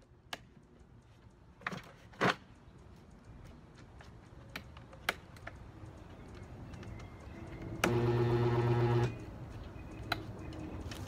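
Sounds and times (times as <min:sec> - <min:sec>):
chipper shredder humming: 0:07.8 - 0:09.1.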